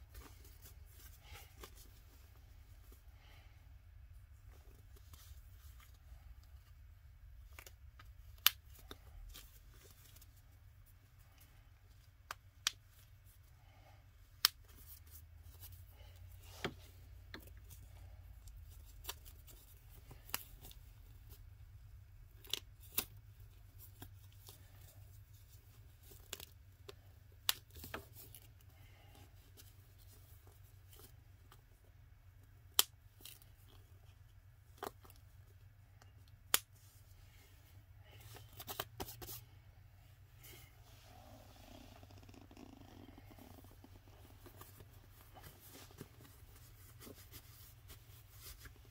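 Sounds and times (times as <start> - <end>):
cloth handling rustle: 36.8 - 48.9.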